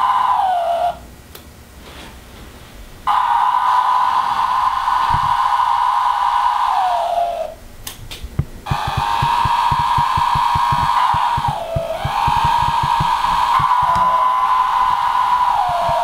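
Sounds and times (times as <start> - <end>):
cicadas buzzing: 8.6 - 16.0
cicada wing-flick clicks: 8.7 - 14.3.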